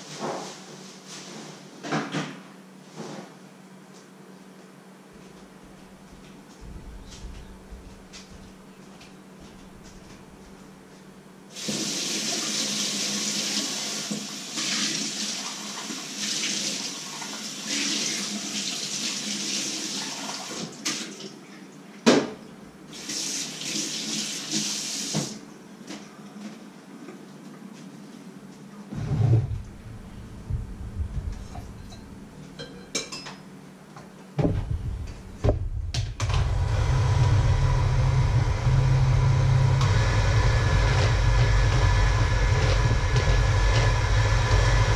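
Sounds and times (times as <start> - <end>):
electric hand mixer beating batter: 36.4 - 44.9.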